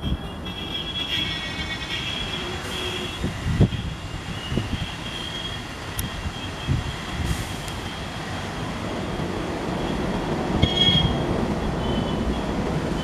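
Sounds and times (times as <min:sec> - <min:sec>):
sharp squeal: 0:00.0 - 0:08.1, 0:10.6 - 0:11.2, 0:11.8 - 0:12.4
diesel locomotive rumble: 0:00.0 - 0:13.0.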